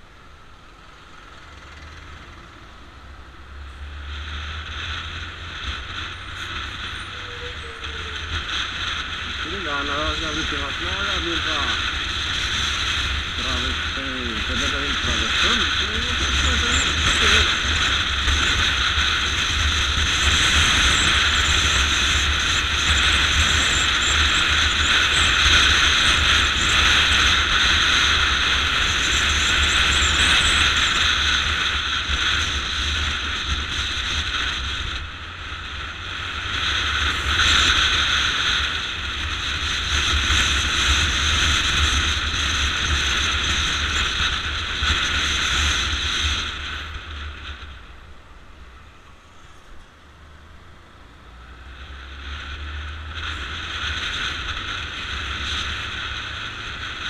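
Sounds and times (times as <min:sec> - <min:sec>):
motorcycle engine running: 0:00.0 - 0:57.0
wind rush on microphone: 0:04.1 - 0:48.0.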